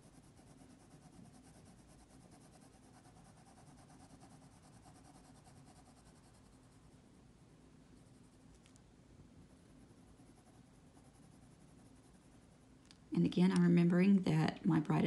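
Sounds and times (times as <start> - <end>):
pencil scratching on paper: 0.0 - 7.0, 9.5 - 12.6.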